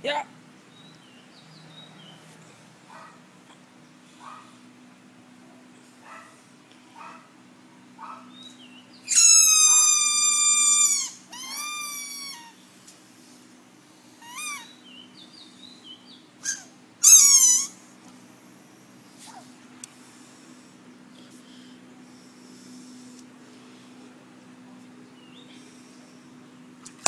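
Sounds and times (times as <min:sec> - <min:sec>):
dog whining: 0:09.1 - 0:12.6, 0:14.2 - 0:14.8, 0:16.4 - 0:17.8.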